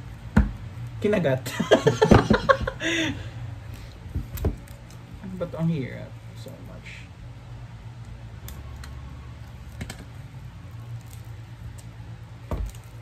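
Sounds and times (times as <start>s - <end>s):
low steady hum: 0.0s - 13.0s
plastic wrapping crinkling: 8.5s - 13.0s.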